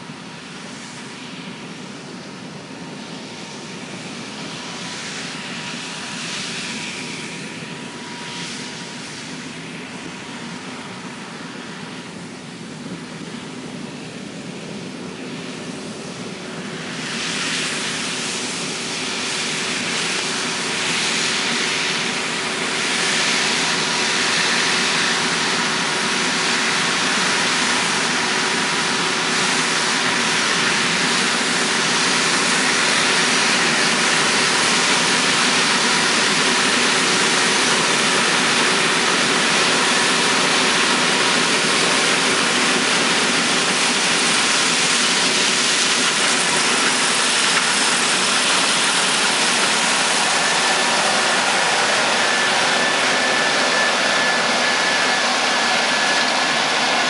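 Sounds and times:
combine harvester running: 0.0 - 57.0
faint steady whines: 0.0 - 57.0.

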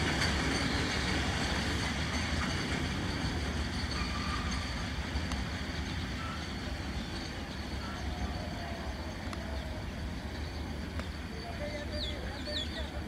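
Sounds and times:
train rumbling on track: 0.0 - 13.0.

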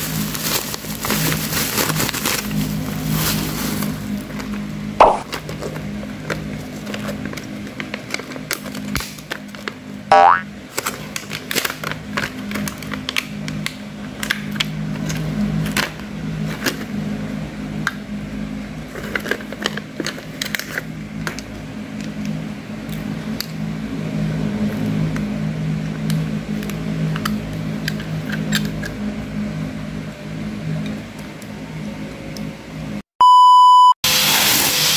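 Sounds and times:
plastic packaging crackling: 0.0 - 4.5.

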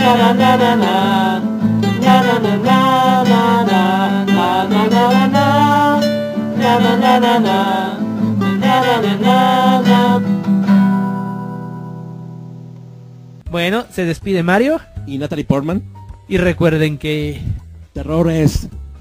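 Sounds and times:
person singing: 0.0 - 10.9
strummed acoustic guitar: 0.0 - 13.1.

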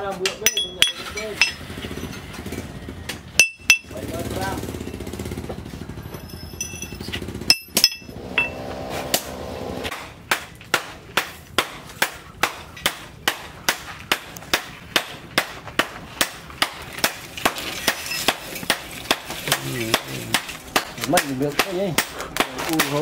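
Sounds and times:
metal clanks: 0.1 - 2.5, 3.4 - 4.0, 6.1 - 8.7.

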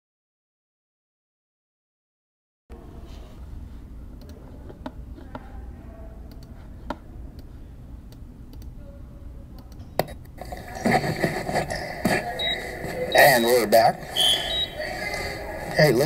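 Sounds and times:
steady low hum: 2.7 - 16.0
people's voices: 10.4 - 16.0.

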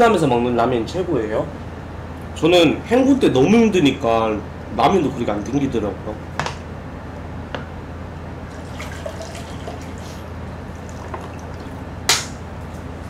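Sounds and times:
low electrical hum: 0.0 - 13.0
water poured into a glass: 8.5 - 10.2, 10.8 - 11.8
sharp click: 12.1 - 12.4.

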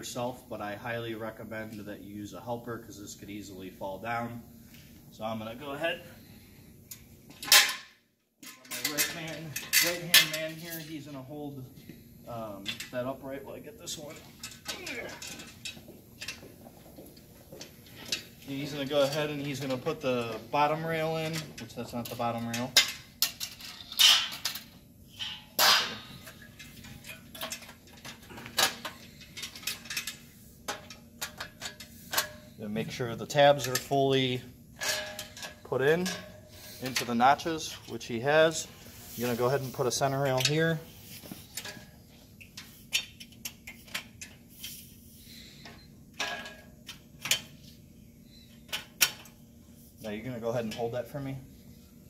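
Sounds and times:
metal clank: 22.5 - 32.6, 34.8 - 37.9.

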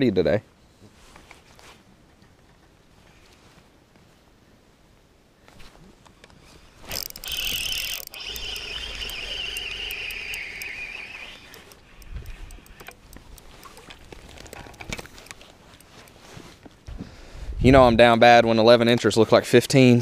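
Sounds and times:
fishing reel whirring: 6.8 - 16.2
light ticks: 6.9 - 16.3.

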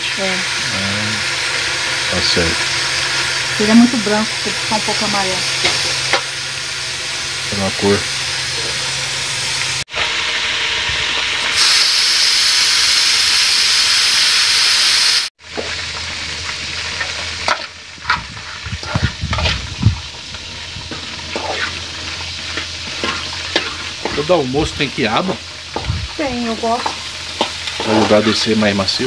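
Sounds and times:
okra sizzling in a skillet: 0.0 - 29.0
metal spoon scraping a pan: 2.8 - 6.3, 16.9 - 28.7.

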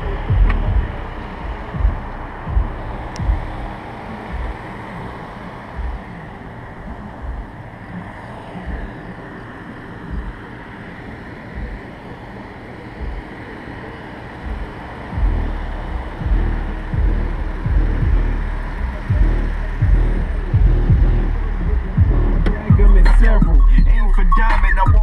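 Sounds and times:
car subwoofer bass thumps: 0.0 - 6.2, 6.9 - 7.6, 8.6 - 9.0, 10.1 - 10.5, 11.5 - 11.9, 13.0 - 13.3, 14.4 - 25.0
wind noise on microphone: 0.0 - 9.2, 12.9 - 25.0.

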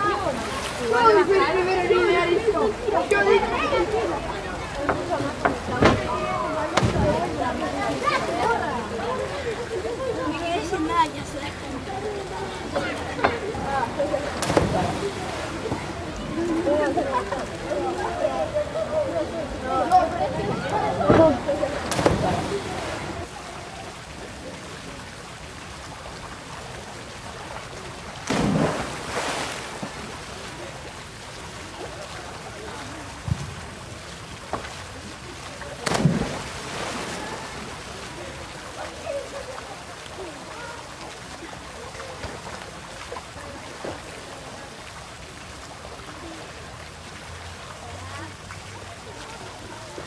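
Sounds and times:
faint distant voices: 0.0 - 50.0
loud splash into pool: 5.1 - 9.1, 13.2 - 16.6, 20.5 - 23.3, 28.2 - 30.7, 35.6 - 38.4.

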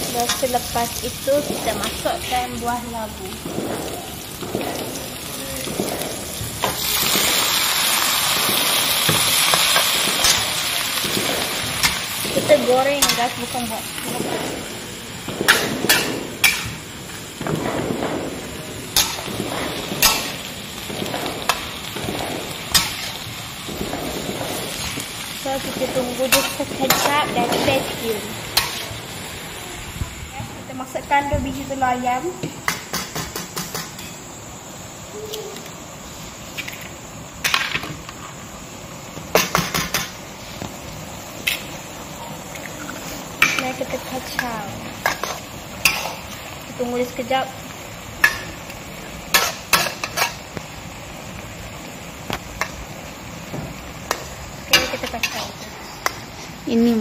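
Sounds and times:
frying sizzle: 0.0 - 57.0
spatula scraping vegetables in wok: 24.5 - 29.1, 42.9 - 46.4, 49.3 - 50.5, 54.0 - 56.6
eggs cracking against a wok: 47.6 - 56.7.

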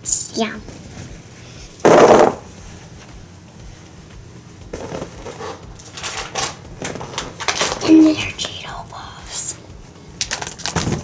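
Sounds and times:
snack packaging crackling rustle: 10.2 - 11.0.

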